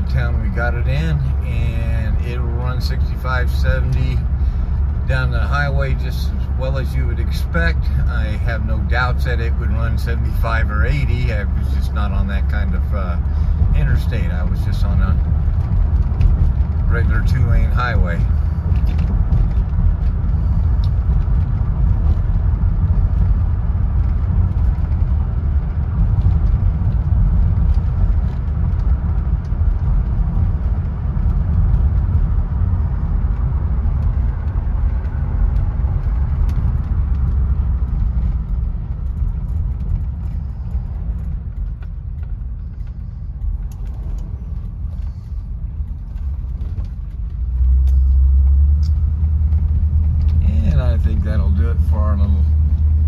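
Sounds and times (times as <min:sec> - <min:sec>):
car engine rumble inside cabin: 0:00.0 - 0:53.0.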